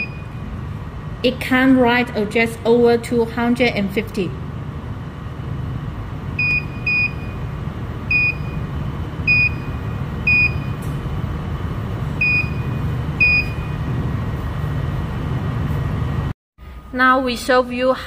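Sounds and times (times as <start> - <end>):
short high keypad beeps: 0.0 - 0.4
steady low rumble: 0.0 - 17.4.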